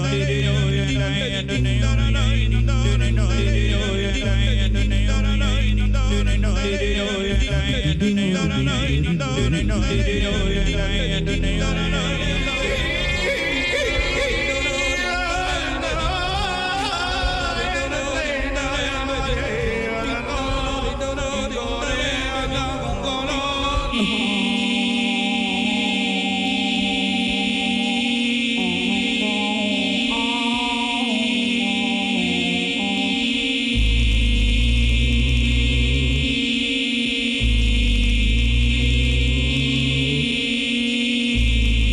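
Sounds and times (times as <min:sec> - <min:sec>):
short sung melody: 0:00.0 - 0:19.4
choir-like vocal drone: 0:00.0 - 0:41.9
layered singing voices: 0:00.0 - 0:41.9.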